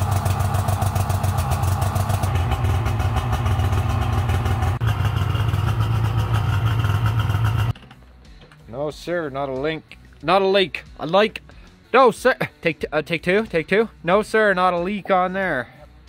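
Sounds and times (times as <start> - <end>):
snowmobile engine running: 0.0 - 7.7.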